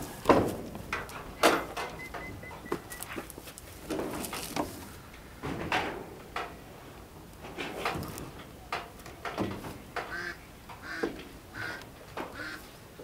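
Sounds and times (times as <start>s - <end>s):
sheet-metal shed knocks and rattles: 0.0s - 2.0s, 3.8s - 4.8s, 5.4s - 6.8s, 7.4s - 10.2s.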